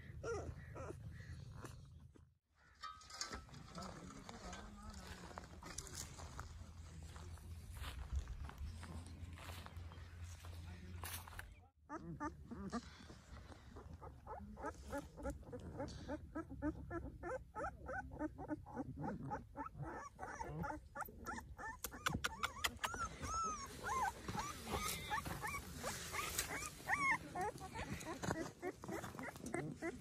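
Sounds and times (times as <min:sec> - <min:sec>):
puppies whimpering and yelping: 0:00.0 - 0:01.9, 0:11.9 - 0:12.8, 0:13.4 - 0:30.0.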